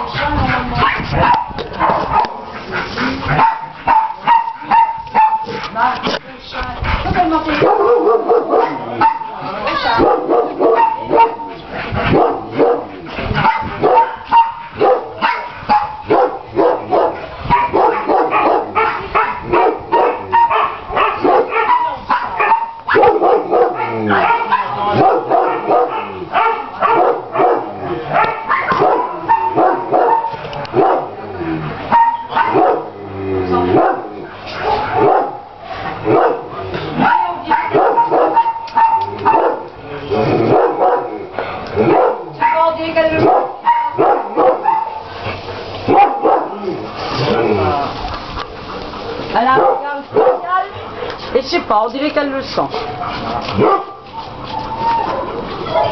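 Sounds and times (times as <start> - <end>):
dogs barking: 0.0 - 5.8, 7.0 - 33.0, 33.6 - 55.9.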